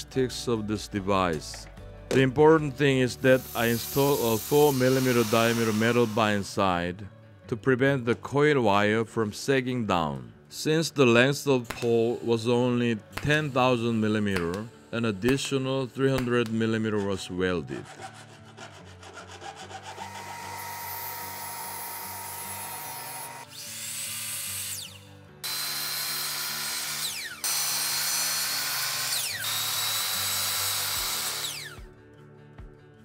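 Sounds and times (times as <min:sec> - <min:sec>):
soft background music: 0:00.0 - 0:33.0
miter saw cutting wood: 0:03.3 - 0:06.4, 0:17.9 - 0:31.8
hand file rasping metal rod: 0:16.7 - 0:21.0.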